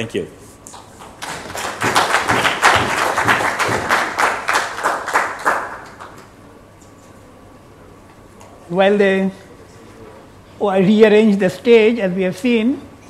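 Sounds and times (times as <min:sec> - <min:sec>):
audience applauding: 0:00.8 - 0:06.4.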